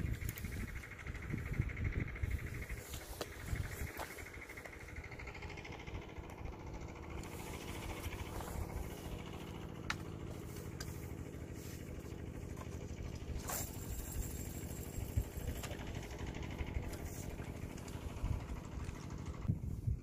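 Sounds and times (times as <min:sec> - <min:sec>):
low mechanical hum: 0:00.0 - 0:20.0
fishing line hissing off reel: 0:13.4 - 0:15.8.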